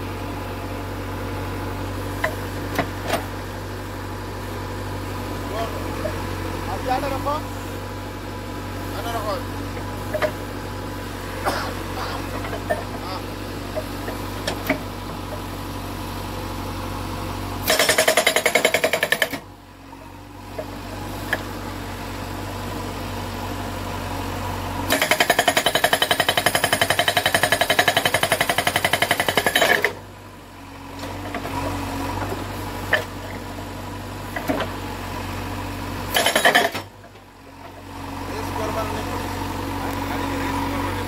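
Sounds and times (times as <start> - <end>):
diesel engine running: 0.0 - 41.0
hydraulic rock breaker hammering: 17.6 - 19.5, 24.9 - 30.0, 36.1 - 37.2.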